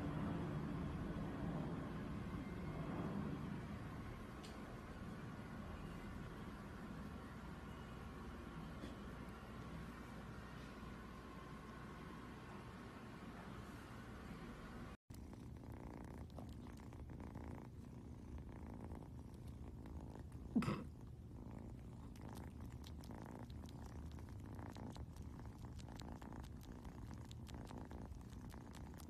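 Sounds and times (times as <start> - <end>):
kitten purring: 15.1 - 29.0.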